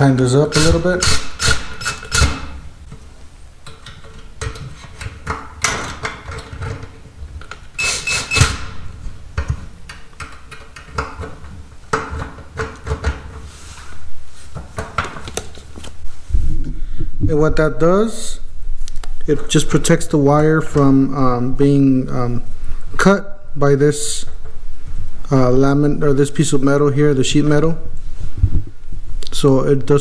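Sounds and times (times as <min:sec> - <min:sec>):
cordless drill driving screws: 0:00.6 - 0:02.5, 0:07.8 - 0:08.7.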